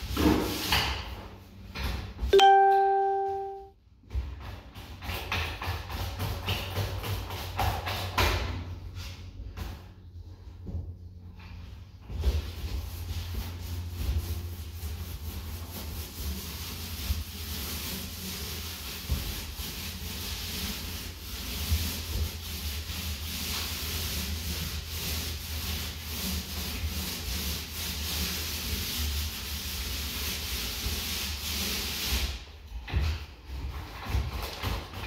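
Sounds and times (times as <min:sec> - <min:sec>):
scratchy rubbing strokes: 0:12.4 - 0:32.5.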